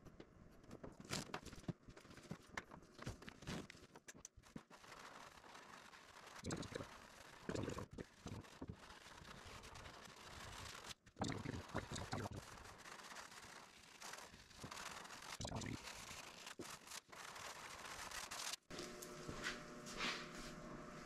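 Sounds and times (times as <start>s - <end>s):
squeegee scraping swish: 4.7s - 18.6s.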